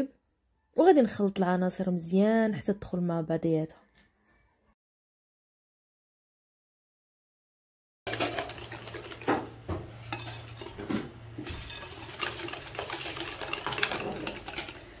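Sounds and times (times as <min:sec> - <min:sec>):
whisk beating batter in glass bowl: 0:08.1 - 0:15.0.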